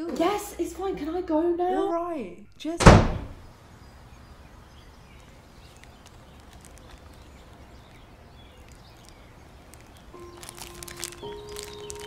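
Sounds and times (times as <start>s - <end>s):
faint bird chirps: 3.8s - 12.0s.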